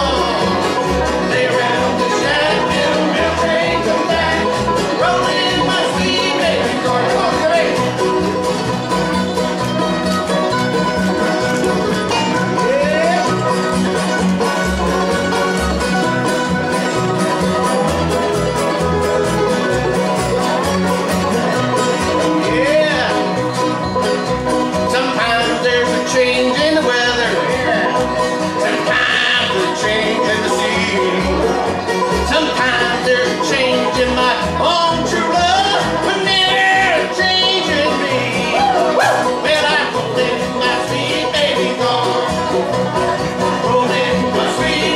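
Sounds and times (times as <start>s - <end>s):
man singing: 0.0s - 8.0s, 12.4s - 13.4s, 21.4s - 23.4s, 24.8s - 42.6s, 43.4s - 44.9s
acoustic guitars: 0.0s - 44.9s
banjo rolls: 0.0s - 44.9s
mandolin: 0.0s - 44.9s
upright bass: 0.0s - 44.9s.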